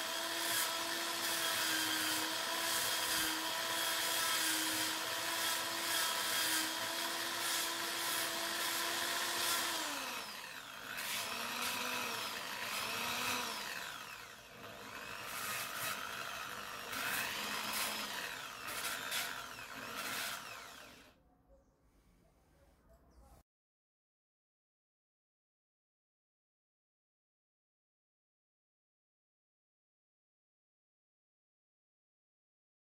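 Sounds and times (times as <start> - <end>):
sanding pad against wood: 0.0 - 21.0
drill motor whirring: 0.0 - 21.1.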